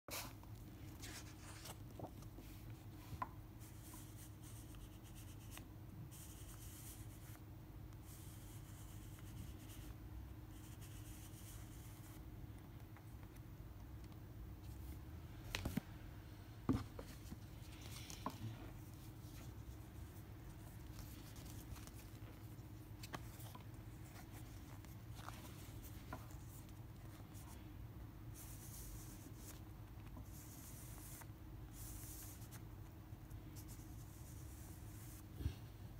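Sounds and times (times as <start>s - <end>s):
low room hum: 0.1s - 35.9s
card and paper rustling: 20.6s - 27.5s.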